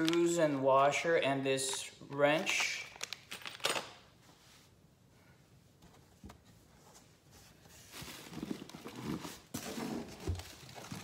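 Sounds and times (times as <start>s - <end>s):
cardboard rustling and scraping: 6.6s - 11.0s.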